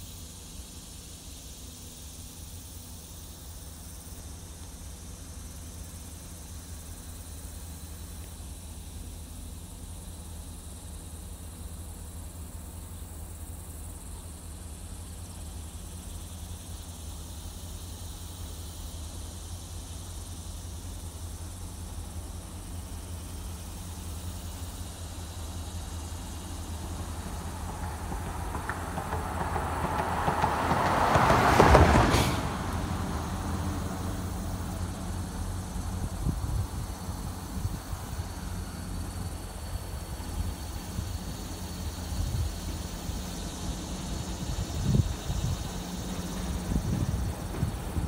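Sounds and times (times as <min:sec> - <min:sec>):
vehicle passing by: 0:26.5 - 0:48.0
steady low rumble: 0:32.4 - 0:48.0.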